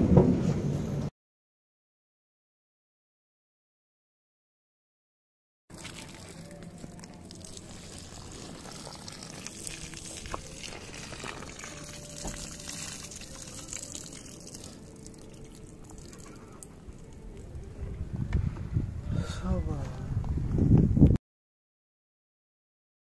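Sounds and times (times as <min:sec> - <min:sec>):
water trickling onto soil: 0:05.7 - 0:17.6.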